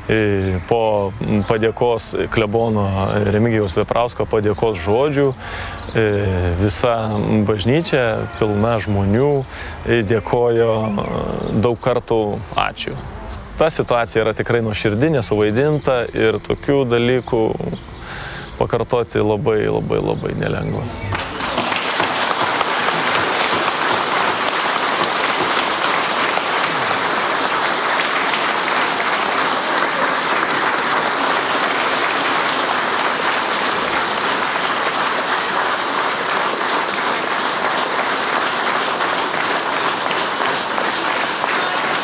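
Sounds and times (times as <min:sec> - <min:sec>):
crowd applauding: 0:04.8 - 0:09.4, 0:21.1 - 0:42.0.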